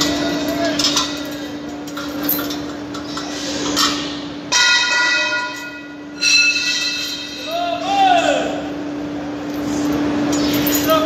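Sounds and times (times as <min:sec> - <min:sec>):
steel pipe struck ringing: 0:04.5 - 0:07.7.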